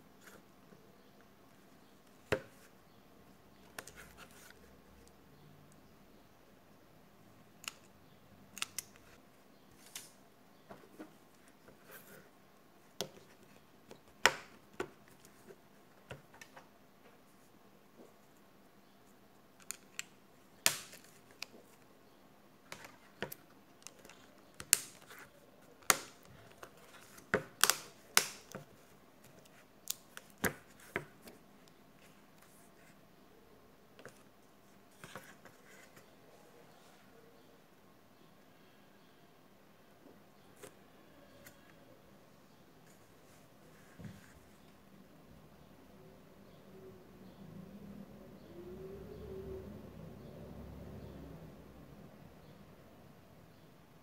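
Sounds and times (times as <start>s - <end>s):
plastic phone body clicking: 27.5s - 28.5s.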